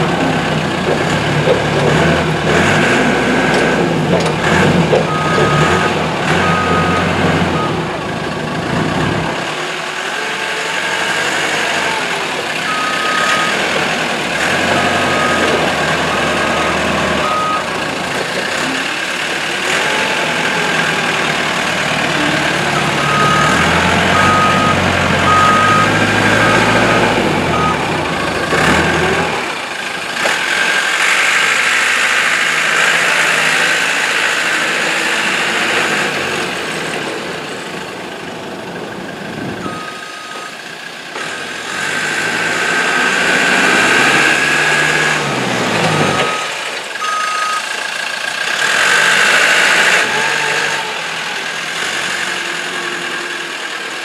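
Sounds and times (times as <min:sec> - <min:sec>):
vehicle moving on gravel: 0:00.0 - 0:38.0
diesel engine running: 0:00.0 - 0:54.0
reversing alarm beeps: 0:05.1 - 0:07.8, 0:17.2 - 0:17.7, 0:22.8 - 0:28.4, 0:39.6 - 0:40.6, 0:46.1 - 0:47.7.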